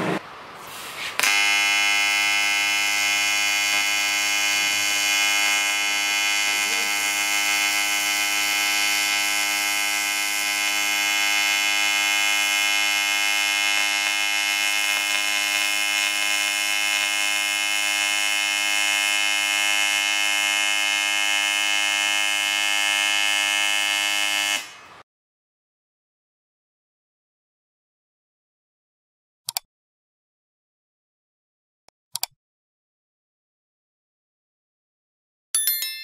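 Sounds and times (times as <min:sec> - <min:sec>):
welding arc buzz: 0:00.0 - 0:24.9.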